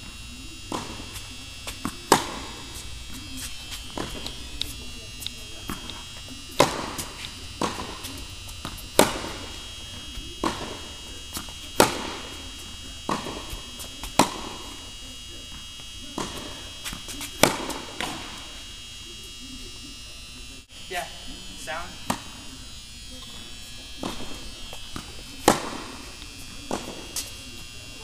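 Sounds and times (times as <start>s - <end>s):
high-pitched hum: 0.0s - 28.0s
ball bouncing on court: 0.6s - 14.8s, 16.1s - 18.4s, 22.0s - 22.5s, 23.1s - 27.6s
tennis racket hitting ball: 0.7s - 2.6s, 3.2s - 9.6s, 10.4s - 12.3s, 13.1s - 14.7s, 16.2s - 18.2s, 24.0s - 27.3s.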